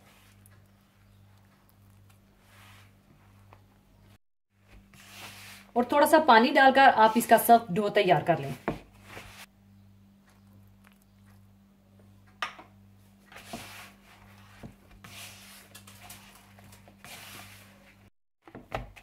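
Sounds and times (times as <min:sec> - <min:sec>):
hands kneading dough: 0:13.2 - 0:18.1.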